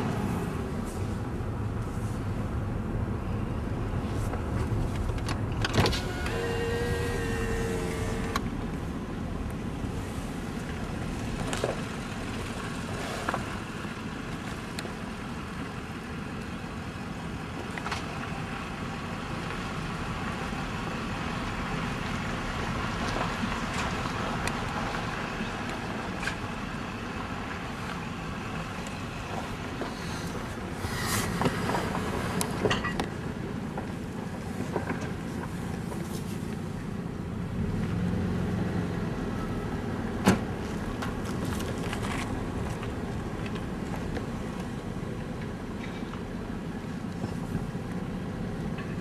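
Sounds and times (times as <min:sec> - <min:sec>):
road and engine rumble: 0:00.0 - 0:49.0.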